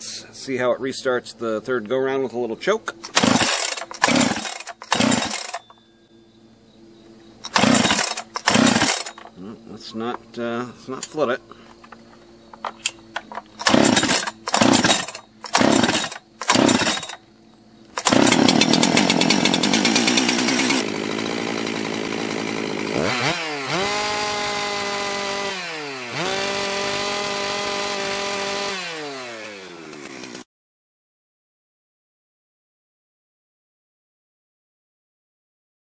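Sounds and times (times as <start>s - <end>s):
starter rope pulls: 2.9s - 5.7s, 7.4s - 9.4s, 12.6s - 17.2s, 17.9s - 30.4s
chainsaw running and revving: 3.0s - 5.6s, 7.5s - 9.2s, 13.6s - 17.2s, 18.0s - 30.5s.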